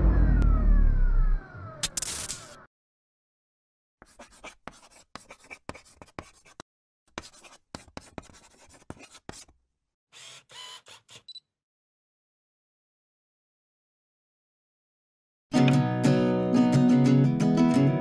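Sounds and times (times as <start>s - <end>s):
pen writing on paper: 4.0s - 9.5s
pen squeak: 10.2s - 11.4s.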